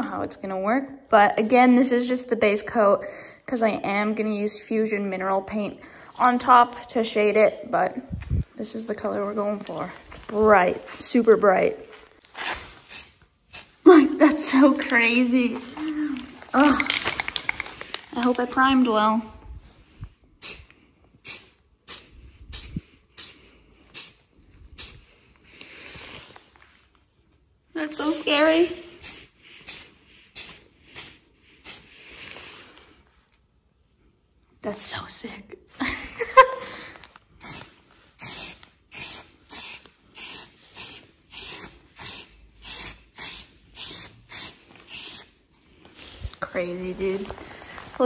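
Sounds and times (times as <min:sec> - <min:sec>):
aerosol spray can hissing: 0:20.4 - 0:24.2, 0:24.8 - 0:25.0, 0:29.0 - 0:31.9, 0:37.4 - 0:45.4.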